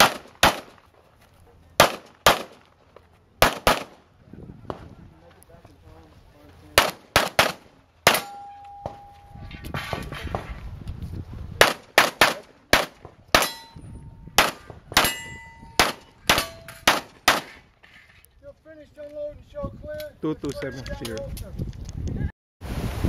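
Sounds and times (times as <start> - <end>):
steel targets clanging: 8.1 - 9.7, 13.4 - 13.9, 15.0 - 17.6
handgun shots: 15.8 - 17.6.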